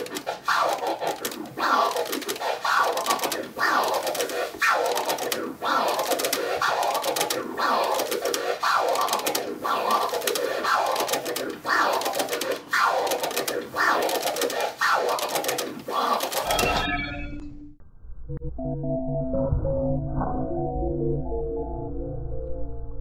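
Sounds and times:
vinyl record scratching: 0.0 - 16.8
soft synthesizer music: 17.3 - 22.7.

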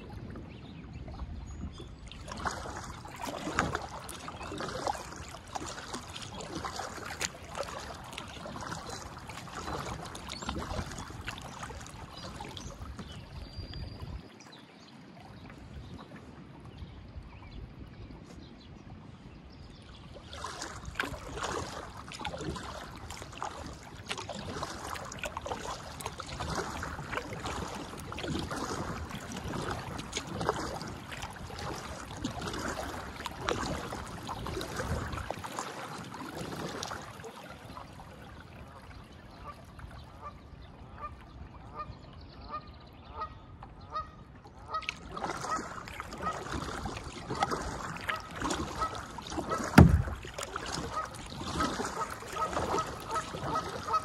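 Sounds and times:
kayak paddle splashing: 0.0 - 19.0, 19.6 - 54.0
loud thump: 49.7 - 50.3.

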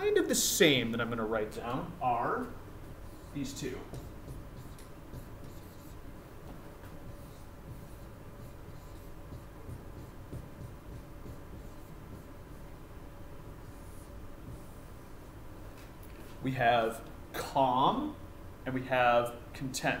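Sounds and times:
marker writing on whiteboard: 2.4 - 12.8, 13.6 - 15.0.

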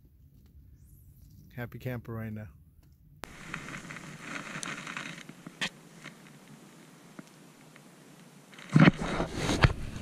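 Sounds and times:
low hiss: 0.5 - 8.7
rustling handling noise: 3.2 - 6.6.

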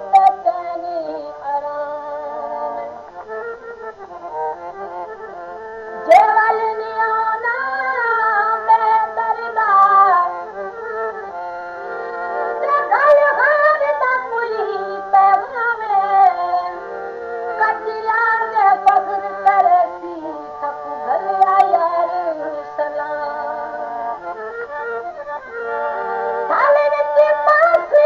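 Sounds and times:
low steady accompaniment: 0.0 - 28.0.

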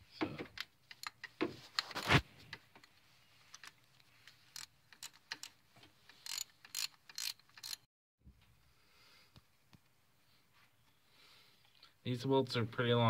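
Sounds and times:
socket ratchet clicking: 4.6 - 7.9.

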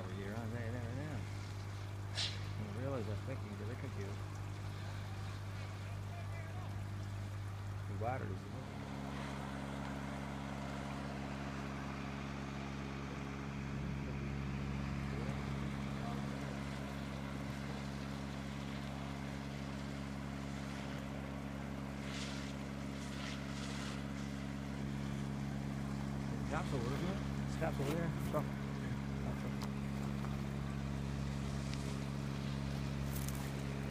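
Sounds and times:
engine idling: 0.0 - 33.9
short hisses: 1.2 - 2.7.

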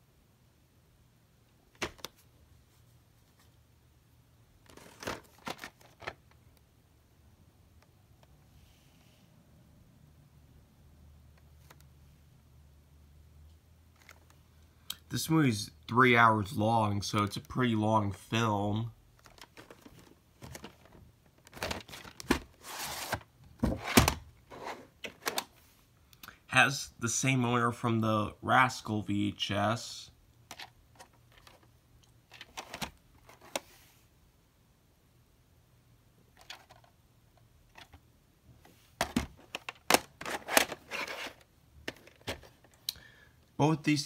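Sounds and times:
plastic cassettes clicking: 1.7 - 2.2, 4.6 - 6.4, 19.2 - 23.2, 25.0 - 25.5, 30.5 - 31.7, 32.3 - 33.6, 36.4 - 36.9, 37.7 - 38.0, 39.0 - 43.0
plastic scraping against cardboard: 19.2 - 25.4, 39.4 - 42.6
plastic scraping rubs: 39.4 - 42.5.

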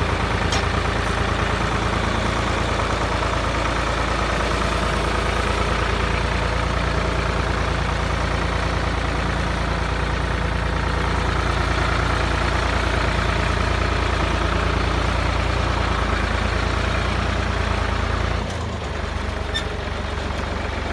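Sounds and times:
tractor engine running: 0.0 - 20.9.

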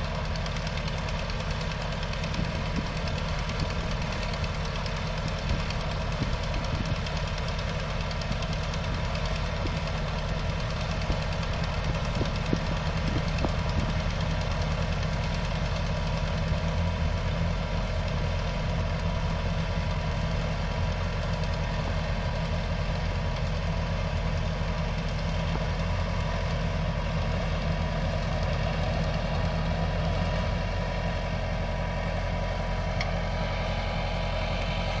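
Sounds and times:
tractor engine idling: 0.0 - 35.0.

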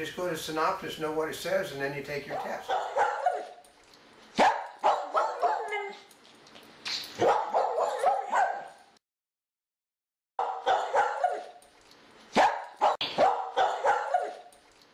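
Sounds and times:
dog barking and yipping: 2.3 - 3.7, 4.3 - 6.2, 7.1 - 8.9, 10.4 - 11.7, 12.3 - 14.6.

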